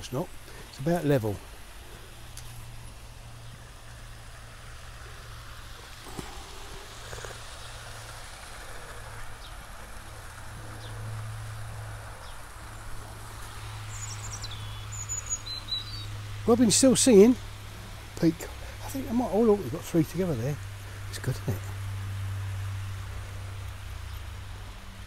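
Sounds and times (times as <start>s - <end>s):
robin singing: 13.6s - 17.4s.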